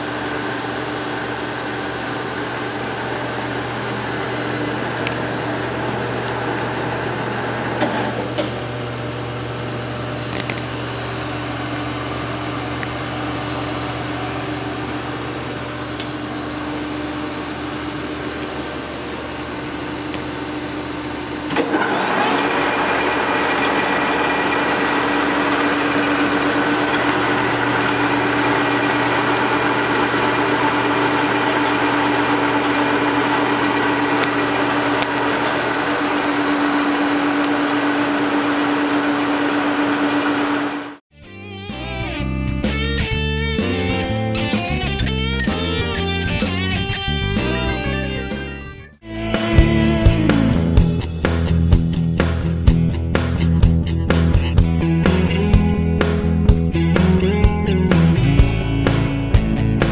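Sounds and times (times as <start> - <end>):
lathe running: 0.0 - 12.4, 21.5 - 41.0.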